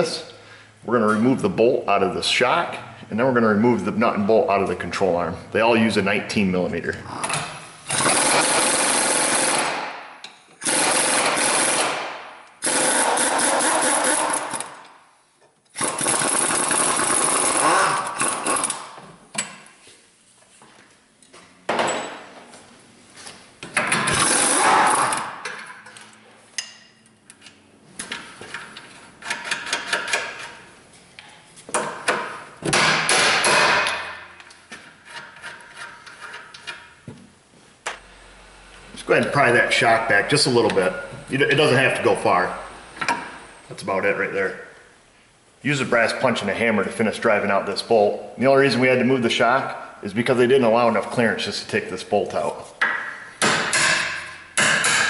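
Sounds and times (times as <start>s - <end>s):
impact wrench hammering: 7.9s - 14.8s, 15.8s - 19.0s, 31.7s - 34.4s, 52.8s - 55.0s.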